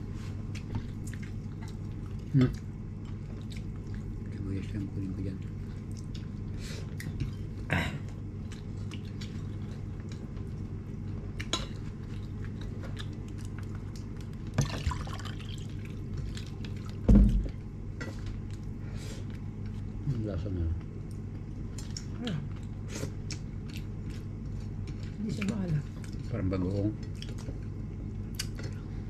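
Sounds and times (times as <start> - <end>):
steady low hum: 0.0 - 29.0
chewing: 0.5 - 4.4, 5.4 - 7.5, 8.1 - 14.4, 21.0 - 26.3, 27.0 - 28.8.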